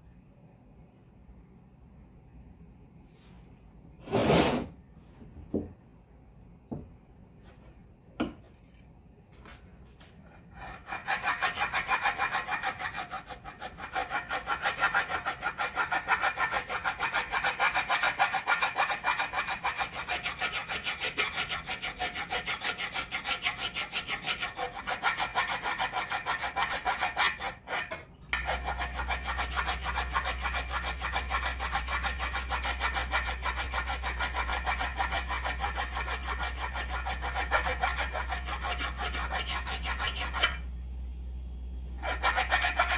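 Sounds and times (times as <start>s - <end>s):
rasp scraping wooden handle: 10.5s - 40.7s, 42.0s - 42.9s.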